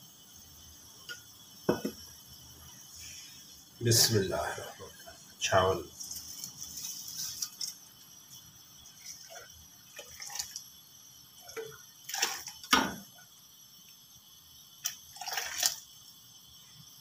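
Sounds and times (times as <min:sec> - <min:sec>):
water splashing into pan: 0:09.0 - 0:10.6, 0:11.4 - 0:13.2.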